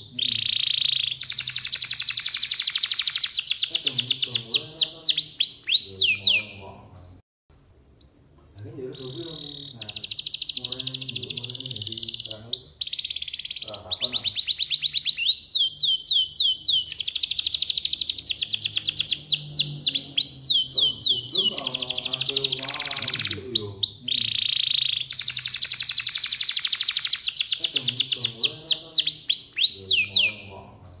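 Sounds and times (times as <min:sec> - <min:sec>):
canary singing: 0:00.0 - 0:31.0.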